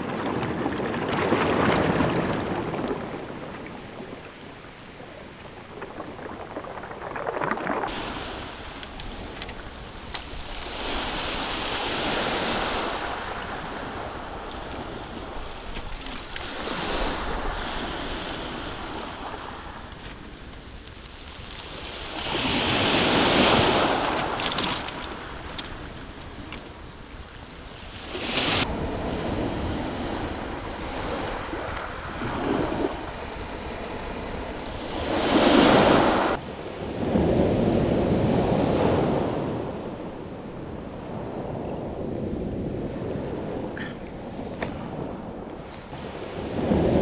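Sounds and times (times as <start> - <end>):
surf breaking over pebbles: 5.4 - 26.8.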